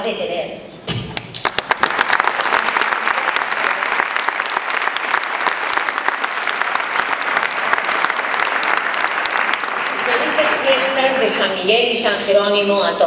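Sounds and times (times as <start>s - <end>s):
audience applauding: 1.2s - 11.4s.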